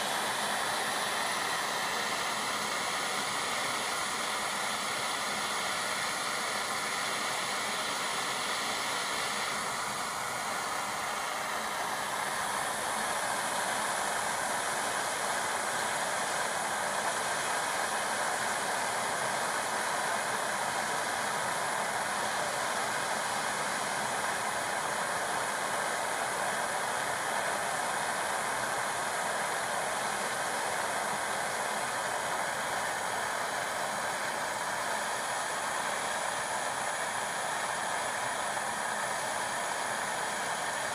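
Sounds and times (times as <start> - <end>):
gas torch hissing: 0.0 - 40.9.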